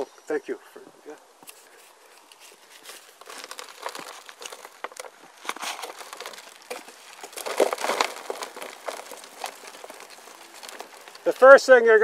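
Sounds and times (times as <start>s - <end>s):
plastic pot and soil crackling: 1.1s - 12.0s.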